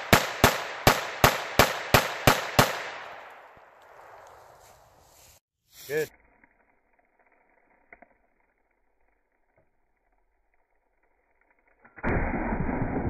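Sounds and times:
slowed gunshot boom: 12.0 - 13.0.

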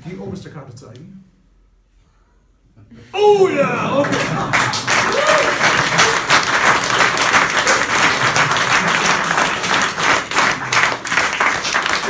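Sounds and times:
audience applauding: 3.4 - 12.0.

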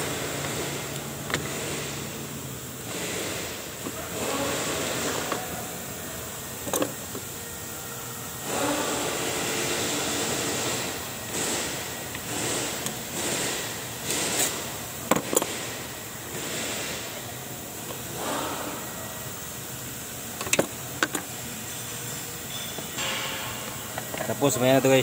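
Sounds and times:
steady background noise: 0.0 - 25.0.

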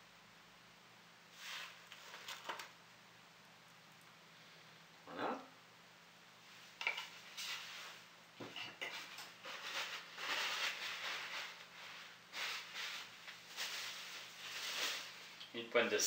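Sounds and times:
livers sizzling in a frying pan: 6.7 - 15.5.

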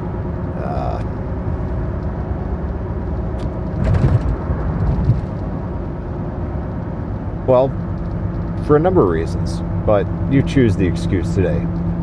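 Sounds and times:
car interior rumble: 0.0 - 12.0
car bump: 3.4 - 5.4.

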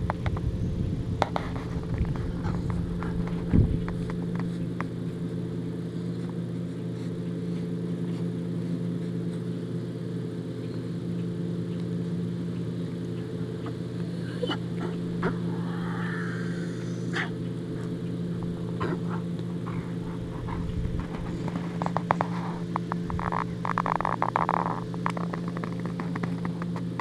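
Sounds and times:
low engine-like hum: 0.0 - 27.0
dog chewing and crunching bones: 17.8 - 26.9.

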